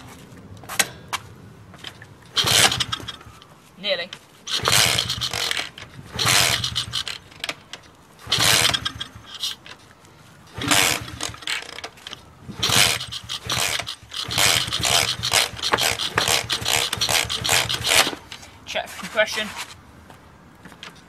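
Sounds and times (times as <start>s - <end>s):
motorcycle engine cranking: 1.8s - 3.5s, 4.5s - 18.5s.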